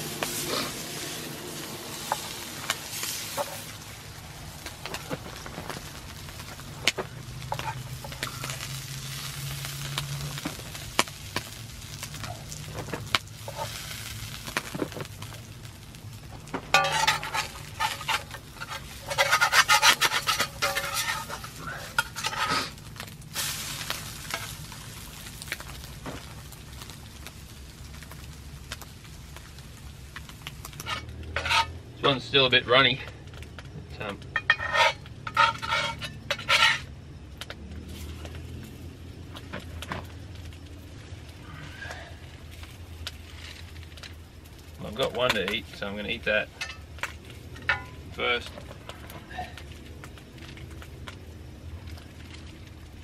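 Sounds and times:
food sizzling in a frying pan: 0:00.0 - 0:53.0
spoon scraping a pan: 0:02.0 - 0:03.7, 0:07.5 - 0:08.3, 0:13.4 - 0:13.8, 0:16.7 - 0:22.8, 0:30.7 - 0:32.2, 0:34.4 - 0:36.9.

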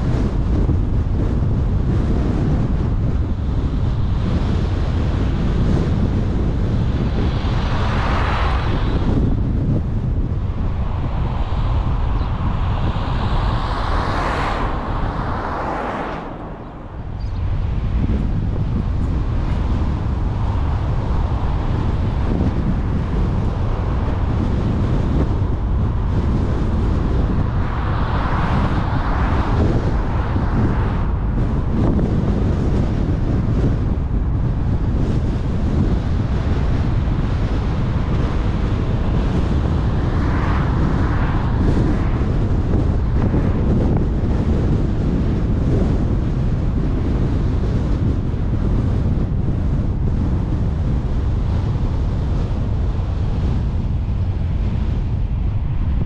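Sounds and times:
road and tyre noise: 0:00.0 - 0:56.0
wind buffeting microphone: 0:00.0 - 0:56.0
passing cars hiss: 0:11.1 - 0:18.0.

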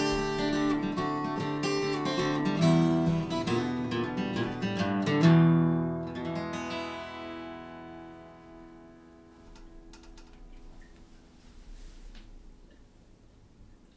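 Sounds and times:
acoustic guitar strumming: 0:00.0 - 0:10.8
faint clicks: 0:09.5 - 0:11.0.

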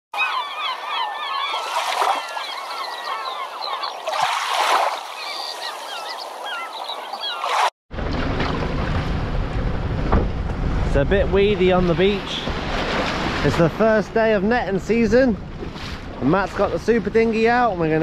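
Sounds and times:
flock of birds calling: 0:00.2 - 0:04.2, 0:05.1 - 0:07.5
small waves washing on shore: 0:03.9 - 0:06.5, 0:11.6 - 0:17.5
wind rumbling on microphone: 0:08.0 - 0:17.4.

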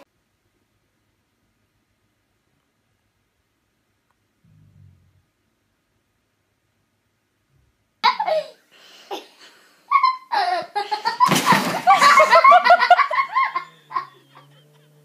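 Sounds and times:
people laughing hard: 0:09.9 - 0:15.0.

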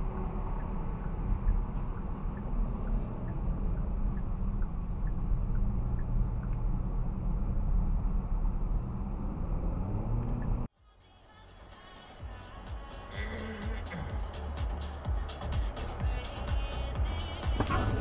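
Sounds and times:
car engine and road rumble: 0:00.0 - 0:18.0
faint light ticks: 0:00.5 - 0:06.7.

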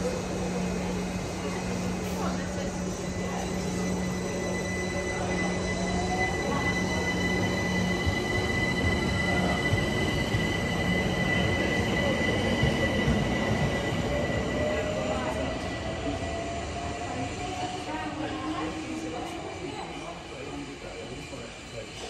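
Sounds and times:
train wheels rumbling on rail: 0:00.0 - 0:22.0
traction motors whining: 0:00.1 - 0:22.0
high steady squeal: 0:02.2 - 0:22.0.

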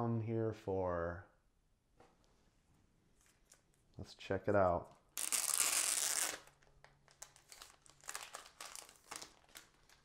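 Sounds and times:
plastic wrap crinkling rip: 0:05.1 - 0:10.0
plastic crinkling: 0:05.2 - 0:10.0.

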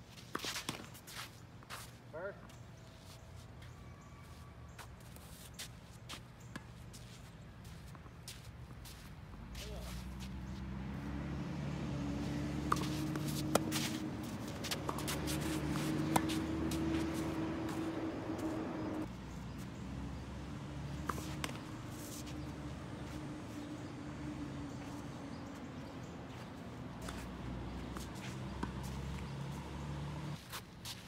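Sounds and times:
motor engine humming: 0:10.4 - 0:30.4
tennis ball knocks: 0:12.2 - 0:19.0.

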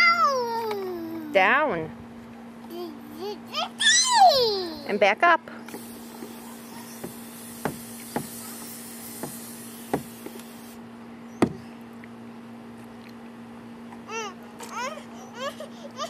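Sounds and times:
steady low hum: 0:00.0 - 0:16.0
high hiss: 0:05.7 - 0:10.8
short sharp knocks: 0:07.0 - 0:08.4, 0:11.4 - 0:11.6.

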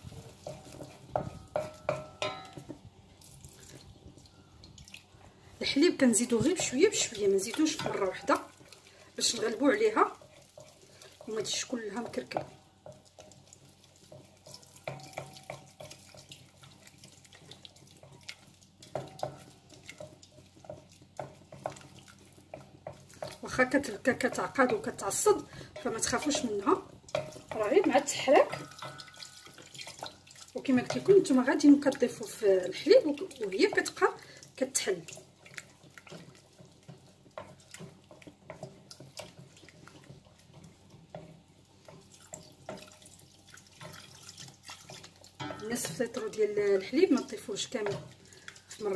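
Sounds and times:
wooden spoon stirring thick roux: 0:00.0 - 0:48.9
spoon knocking against pan: 0:00.4 - 0:02.9, 0:14.2 - 0:16.4, 0:22.6 - 0:32.1, 0:45.4 - 0:46.4.

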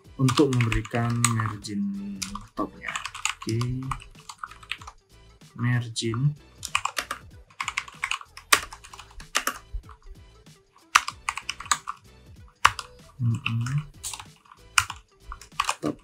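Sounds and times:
keyboard key clicks: 0:10.9 - 0:12.0, 0:12.6 - 0:16.0.

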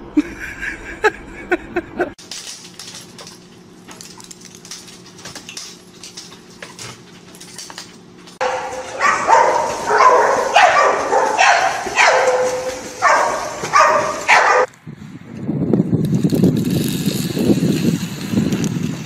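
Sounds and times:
dogs barking and yelping: 0:06.1 - 0:14.7
water splashing: 0:08.4 - 0:14.7.

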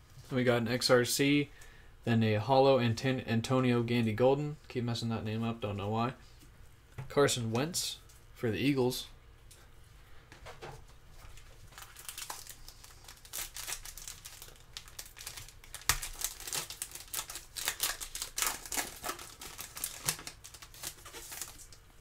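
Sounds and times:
foil wrapper crinkling and tearing: 0:11.4 - 0:21.8.

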